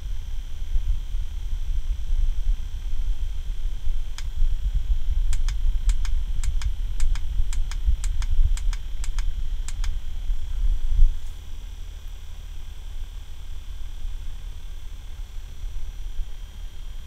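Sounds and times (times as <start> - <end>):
small fan running: 0.0 - 17.0
sharp ticks: 5.3 - 10.0.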